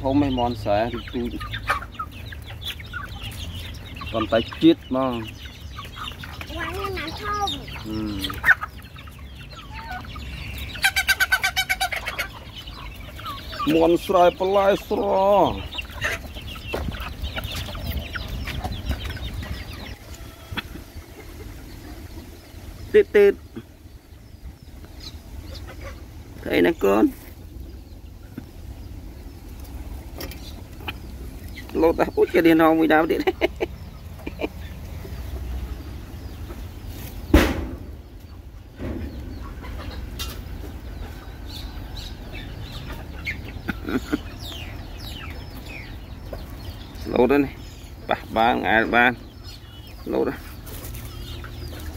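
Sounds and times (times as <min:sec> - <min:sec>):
chickens clucking: 0:00.0 - 0:51.9
chicks peeping: 0:00.0 - 0:51.9
sharp knock: 0:37.3 - 0:37.9.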